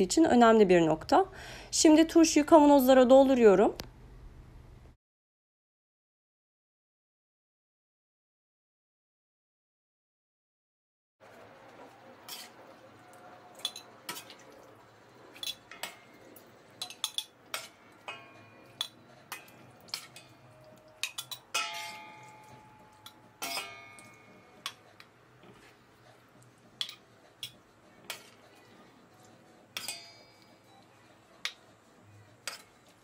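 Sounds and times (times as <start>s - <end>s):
metal spoon clinking on steel pot: 13.6s - 14.4s, 15.3s - 25.7s, 26.7s - 28.7s, 29.7s - 31.7s, 32.4s - 33.0s.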